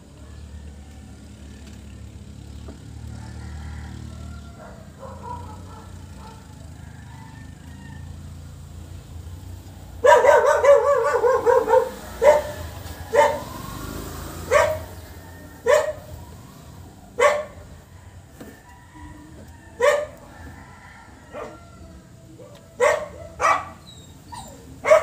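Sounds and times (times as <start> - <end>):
dog barking: 4.6 - 6.5, 10.0 - 13.7, 14.4 - 16.2, 17.1 - 17.8, 19.8 - 20.3, 21.3 - 21.7, 22.4 - 25.0.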